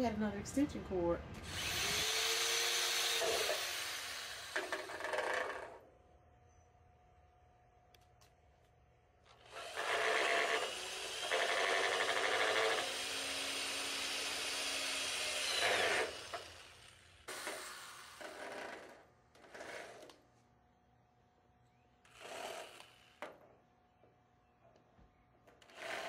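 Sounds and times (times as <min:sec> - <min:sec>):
electric drill driving screw into metal: 0:01.4 - 0:05.8, 0:09.3 - 0:20.2, 0:22.1 - 0:23.4.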